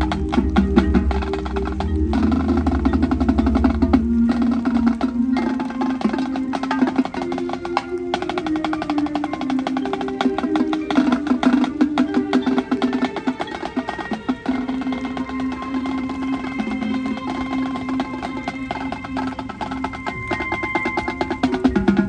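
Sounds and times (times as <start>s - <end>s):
drums and percussion: 0.0s - 22.0s
marching band playing: 0.0s - 22.0s.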